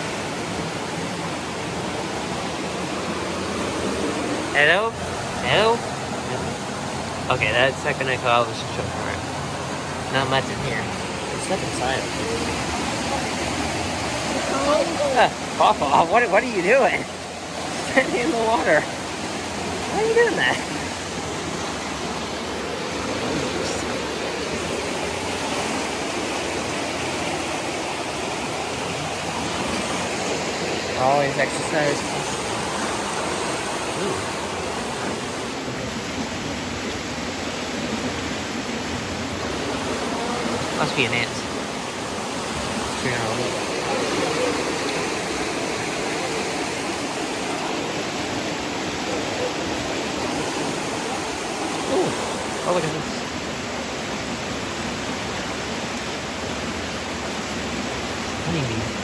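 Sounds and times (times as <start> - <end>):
whitewater rushing over rocks: 0.0 - 59.0.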